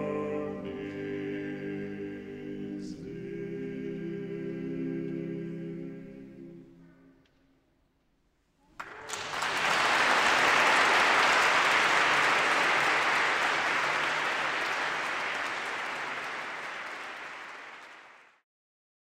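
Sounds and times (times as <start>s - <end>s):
audience applauding: 8.8s - 18.4s.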